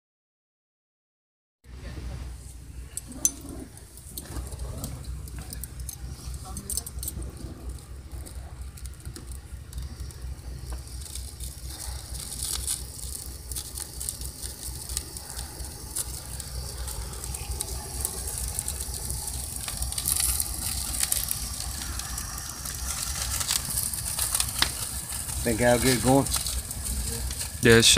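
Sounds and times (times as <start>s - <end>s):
steady low rumble: 1.7s - 27.9s
gas torch hissing: 2.4s - 27.9s
wood crackling and popping: 2.4s - 27.9s.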